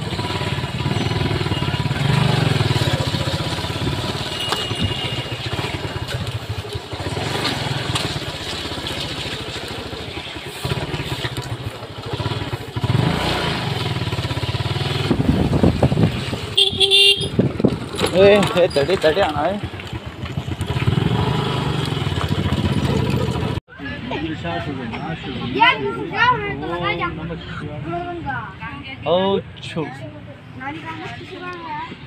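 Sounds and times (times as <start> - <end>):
small motorcycle engine revving: 0.0 - 23.6.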